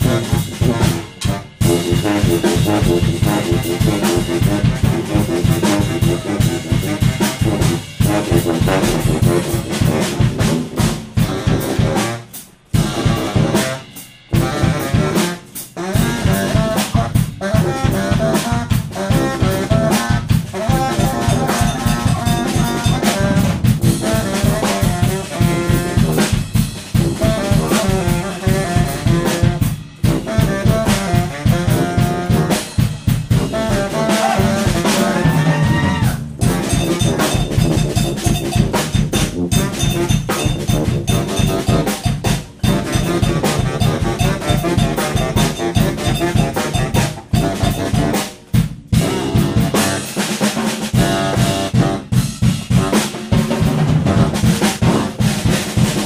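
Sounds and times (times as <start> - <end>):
drum kit beat: 0.0 - 56.0
sousaphone playing: 33.7 - 37.4.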